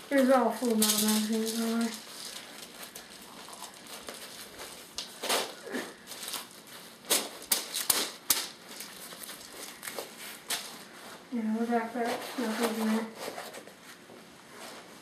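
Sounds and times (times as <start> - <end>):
gear rustling: 0.1 - 8.1.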